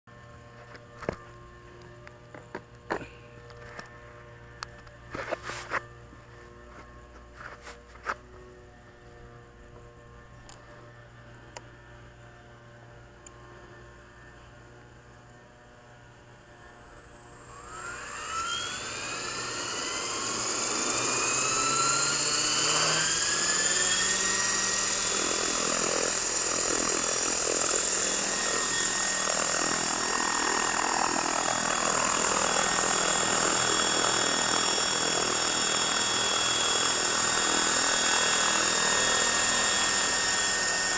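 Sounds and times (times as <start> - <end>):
helicopter motor whine: 0.1 - 40.9
rotor blade noise: 16.4 - 40.9.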